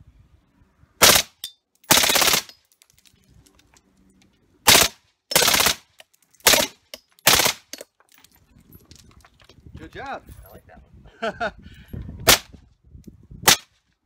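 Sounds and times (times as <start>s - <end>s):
automatic rifle bursts: 1.9s - 2.5s, 4.7s - 5.8s.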